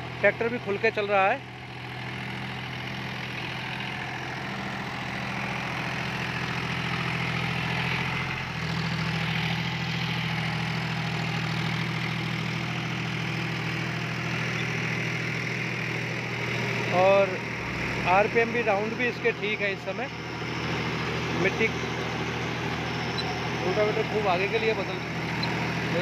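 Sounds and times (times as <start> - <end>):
tractor diesel engine running: 0.0 - 26.0
rotavator tilling soil: 23.0 - 26.0.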